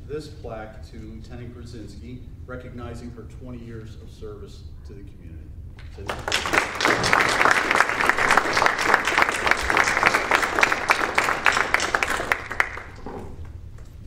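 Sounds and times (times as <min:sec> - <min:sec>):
audience applauding: 0:06.0 - 0:13.1.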